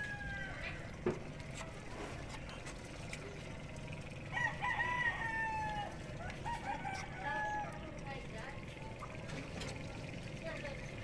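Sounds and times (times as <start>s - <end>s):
rooster crowing: 0.0s - 0.9s, 4.3s - 7.8s.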